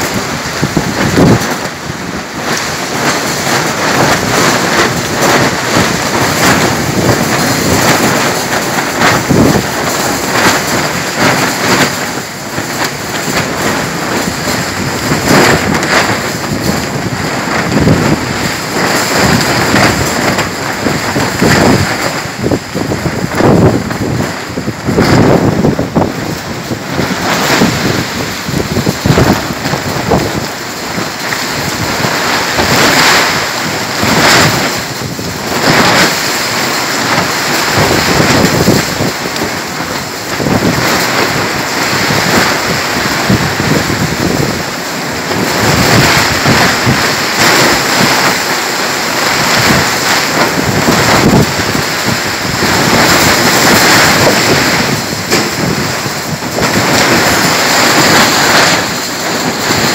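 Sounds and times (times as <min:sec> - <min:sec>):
heavy rain: 0:00.0 - 0:59.9
wind gusts buffeting microphone: 0:00.0 - 0:59.9.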